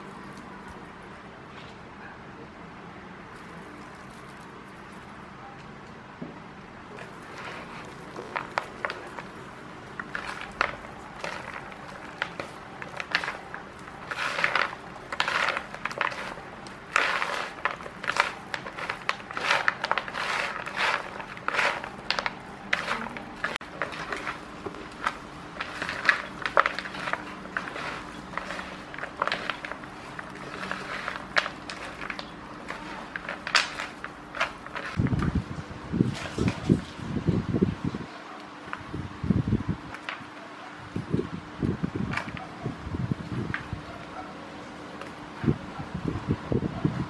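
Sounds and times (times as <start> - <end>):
hands mixing stuffing in bowl: 0.0 - 1.1, 3.3 - 5.2, 7.0 - 35.3.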